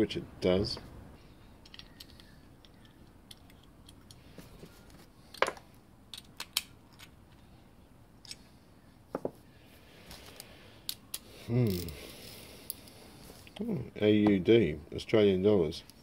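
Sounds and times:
small metal parts clicking and tapping: 1.6s - 4.2s, 5.3s - 7.4s.

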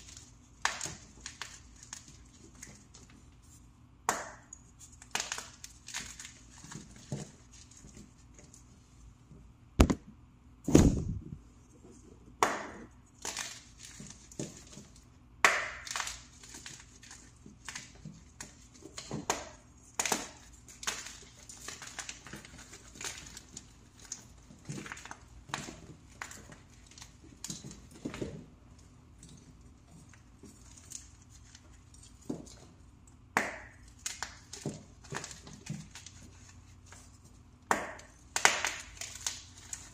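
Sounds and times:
heavy thuds: 10.7s - 11.4s.

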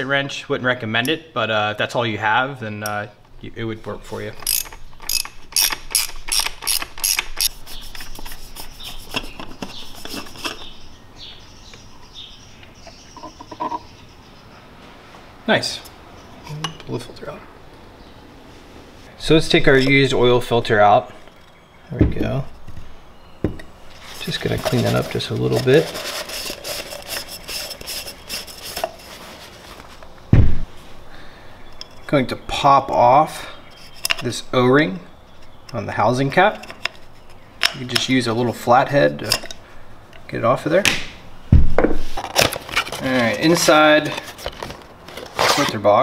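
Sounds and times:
ratchet wrench clicking: 4.4s - 7.6s
paper towel rubbing: 24.0s - 30.0s
dull thump: 30.3s - 30.7s, 40.9s - 42.0s.

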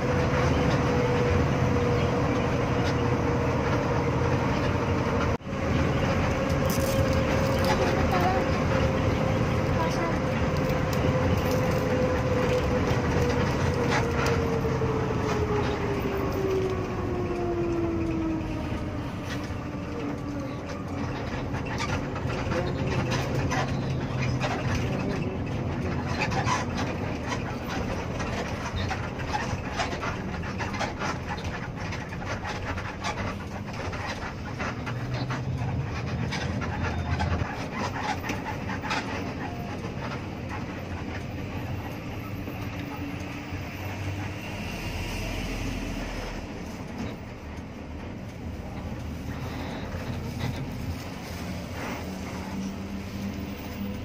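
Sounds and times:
bus engine and road noise: 0.0s - 54.0s.

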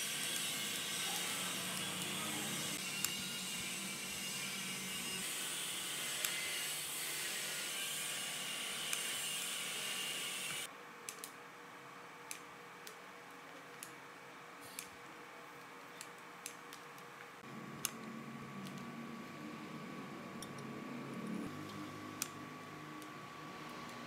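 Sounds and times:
low hum: 17.4s - 24.0s.

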